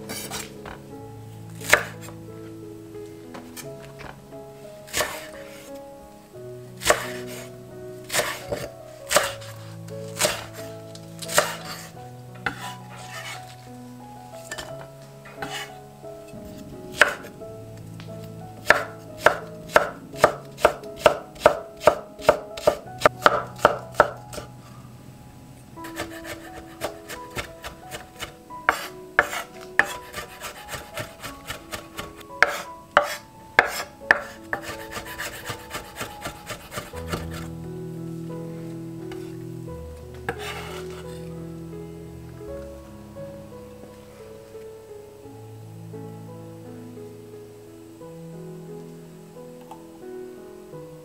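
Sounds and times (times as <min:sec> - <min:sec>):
knife chopping on wooden board: 0:04.9 - 0:05.3, 0:06.8 - 0:07.2, 0:08.1 - 0:09.4, 0:10.2 - 0:10.5, 0:11.3 - 0:11.7, 0:18.6 - 0:24.5, 0:25.9 - 0:37.4.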